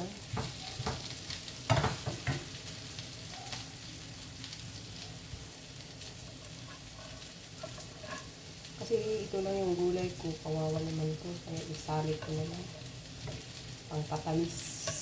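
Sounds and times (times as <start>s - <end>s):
food sizzling in oil: 0.0s - 15.0s
wooden spatula knocking on pan: 0.3s - 1.1s, 1.7s - 2.5s.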